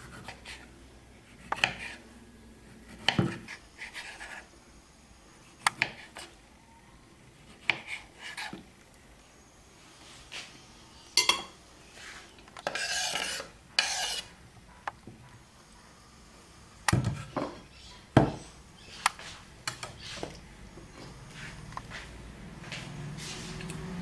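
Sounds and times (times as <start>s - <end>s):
scraping on wooden cutting board: 12.0s - 14.3s.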